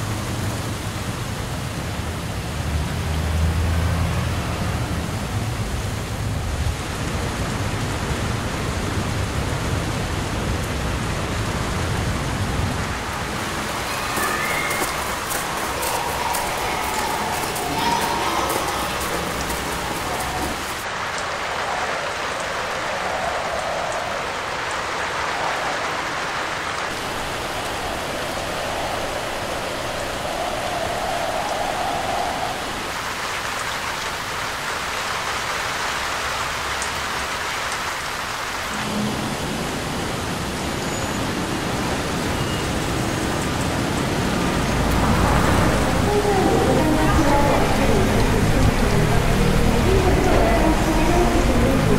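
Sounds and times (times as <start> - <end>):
rainfall hissing: 0.0 - 51.9
low rumble: 43.4 - 51.9.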